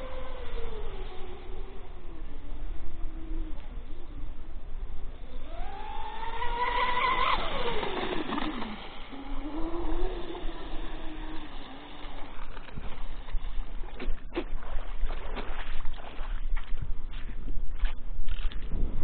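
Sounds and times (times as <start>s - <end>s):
electric motors whining: 0.0s - 13.9s.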